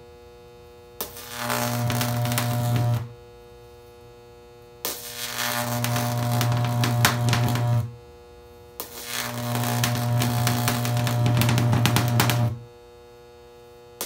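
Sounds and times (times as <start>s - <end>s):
electric arc buzzing and crackling: 1.0s - 3.2s, 4.8s - 8.1s, 8.8s - 12.8s
transformer hum: 1.4s - 3.1s, 5.6s - 7.9s, 9.2s - 12.6s.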